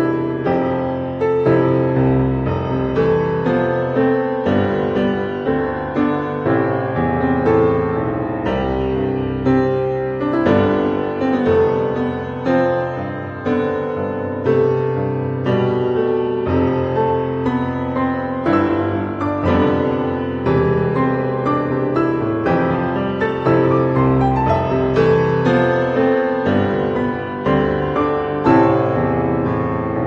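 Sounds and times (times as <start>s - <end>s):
piano melody over chords: 0.0s - 30.0s.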